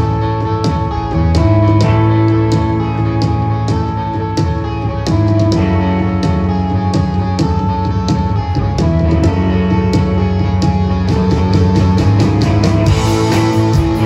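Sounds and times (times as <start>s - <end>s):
bass guitar: 0.0s - 14.0s
drum kit: 0.0s - 14.0s
electric guitars ringing chords: 0.0s - 14.0s.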